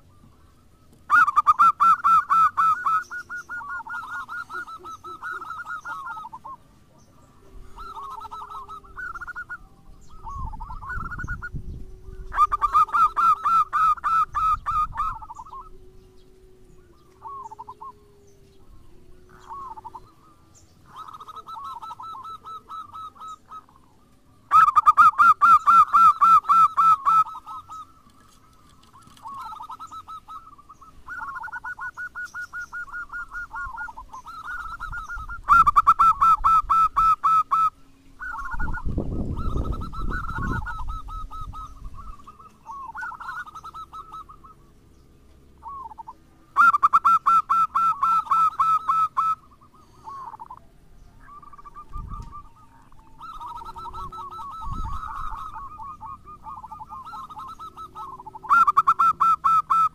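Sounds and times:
dove cooing: 0:00.0 - 0:59.9.

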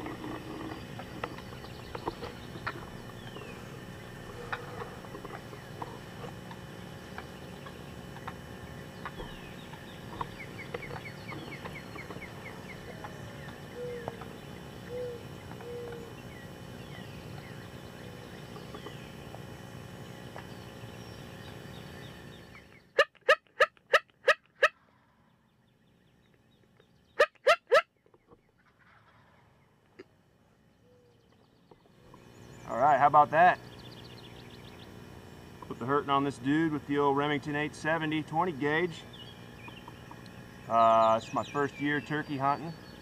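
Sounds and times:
small birds chirping: 0:00.0 - 0:23.0, 0:29.4 - 0:43.0
outdoor background noise: 0:00.0 - 0:43.0
turkey yelping: 0:23.0 - 0:24.8, 0:27.2 - 0:27.9.

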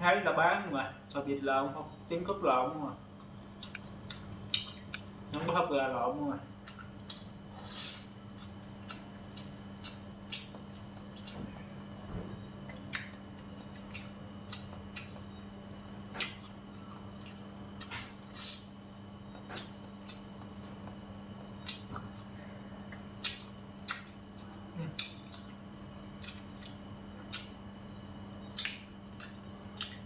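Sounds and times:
steady low hum: 0:00.0 - 0:30.0
chewing and mouth smacks: 0:03.2 - 0:05.1, 0:06.6 - 0:07.4, 0:08.3 - 0:11.5, 0:12.6 - 0:15.3, 0:16.2 - 0:18.7, 0:19.4 - 0:22.3, 0:22.9 - 0:25.6, 0:26.2 - 0:27.6, 0:28.4 - 0:30.0.

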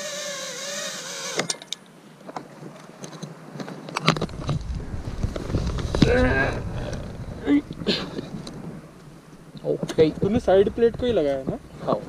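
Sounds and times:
drone motors whining: 0:00.0 - 0:01.5
low rumble of handling: 0:03.6 - 0:12.0.

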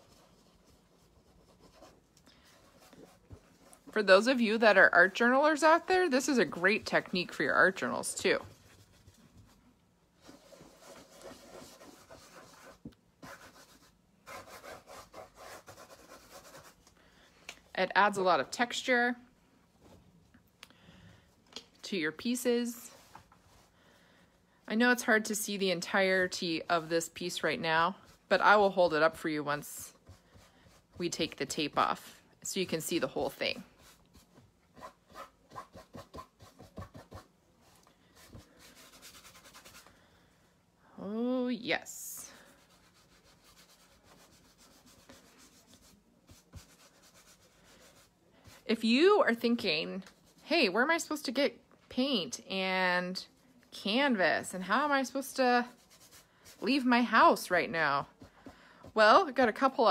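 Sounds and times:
fingers scratching paint on canvas: 0:33.8 - 0:37.3, 0:42.6 - 0:48.7.

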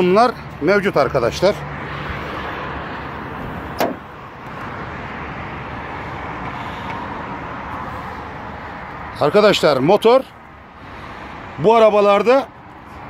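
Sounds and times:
sharp knock: 0:03.8 - 0:04.1.

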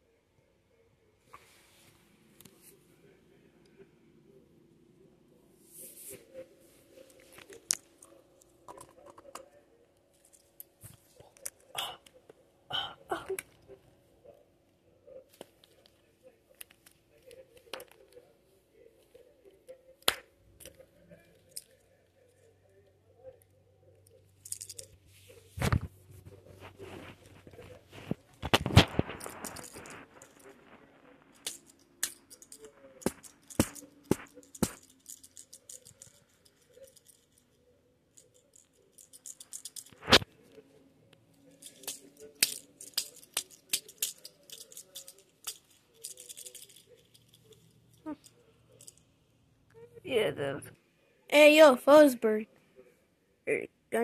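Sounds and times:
plastic toys rustling: 0:24.3 - 0:37.6, 0:38.2 - 0:40.5, 0:41.4 - 0:49.0.

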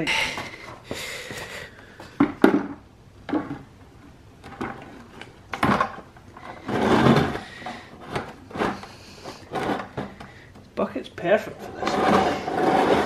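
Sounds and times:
metal housing scraping: 0:11.5 - 0:13.0.

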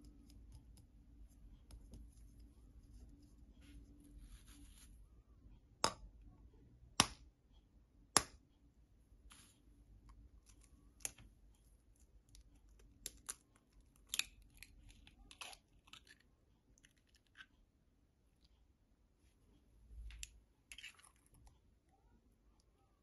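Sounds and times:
knife tapping egg shell: 0:07.0 - 0:07.2, 0:08.2 - 0:08.4.

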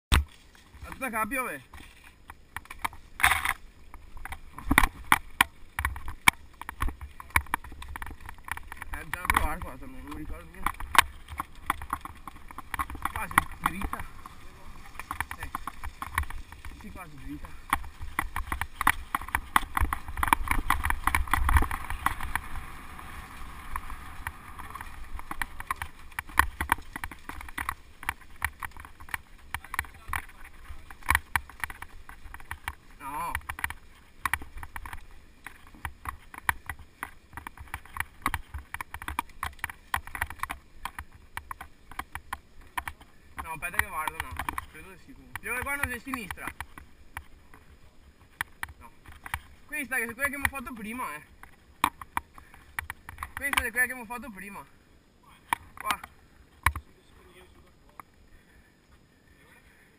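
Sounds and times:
bike rattling over dirt trail: 0:00.1 - 0:59.9
wind rumble: 0:02.2 - 0:43.5.

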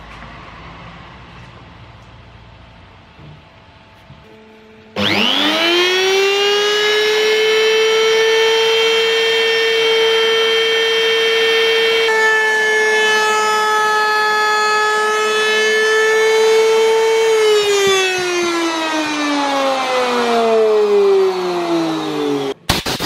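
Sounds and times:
router high whine cutting wood: 0:05.0 - 0:22.6.

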